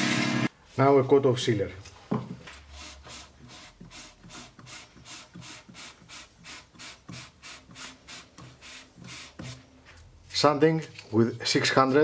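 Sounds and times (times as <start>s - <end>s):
paper towel rubbing wood: 2.7s - 9.7s.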